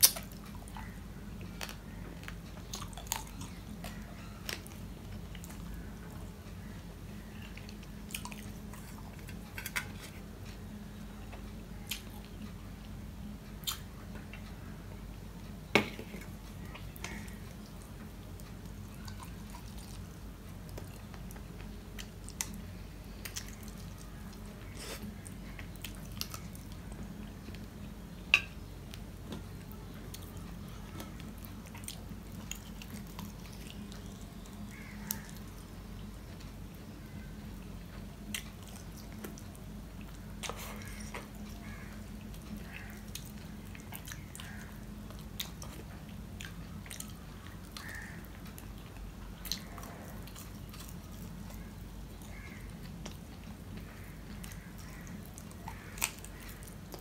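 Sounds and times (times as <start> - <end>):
chewing and wet mouth sounds: 0.0 - 14.7, 16.2 - 57.0
steady low hum: 0.0 - 57.0.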